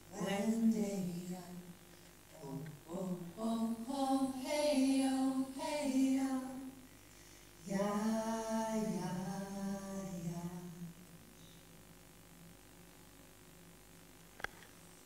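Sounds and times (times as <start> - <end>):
woman singing unaccompanied: 0.0 - 6.8, 7.6 - 11.1.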